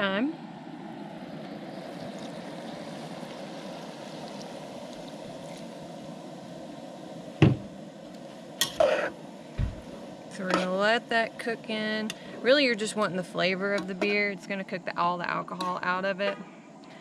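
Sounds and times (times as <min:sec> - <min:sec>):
steady bubbling: 0:00.0 - 0:14.8
beer pouring into pot: 0:01.4 - 0:10.4
metal spatula scraping in pot: 0:08.6 - 0:09.1.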